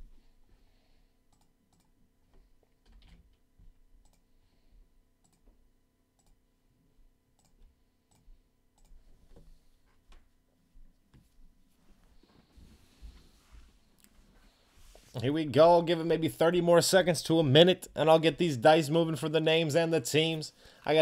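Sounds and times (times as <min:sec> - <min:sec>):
keyboard and mouse clicks: 0:01.3 - 0:02.0, 0:07.4 - 0:09.0.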